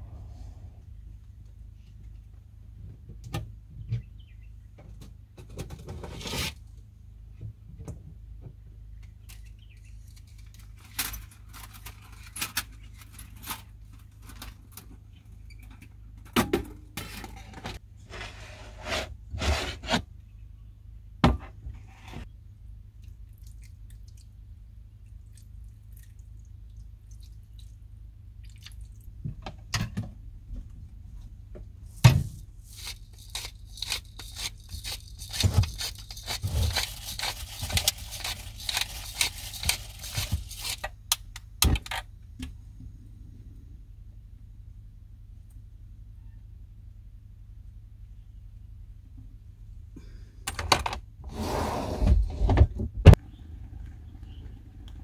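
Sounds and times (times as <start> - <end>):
objects being handled: 32.2 - 42.0.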